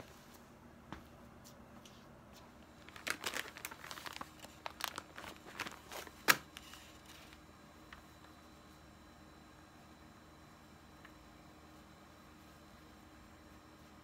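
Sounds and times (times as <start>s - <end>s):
plastic wipes pack crinkling: 2.7s - 8.0s.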